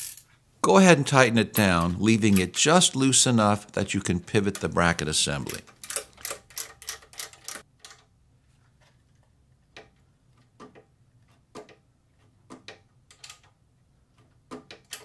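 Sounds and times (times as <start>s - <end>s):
wrench clicking: 5.5s - 8.0s.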